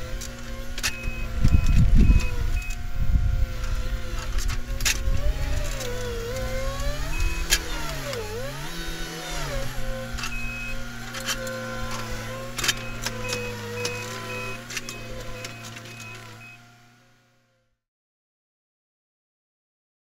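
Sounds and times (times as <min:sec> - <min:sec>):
diesel engine under load: 0:00.0 - 0:17.3
short high beeps: 0:00.9 - 0:02.8, 0:10.3 - 0:10.8, 0:12.8 - 0:16.6.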